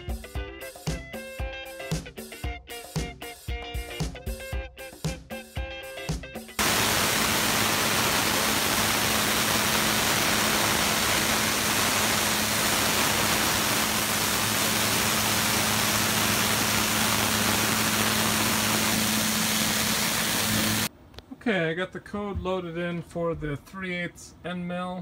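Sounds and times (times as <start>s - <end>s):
coolant spray hissing: 6.6s - 20.9s
spindle humming: 6.6s - 20.9s.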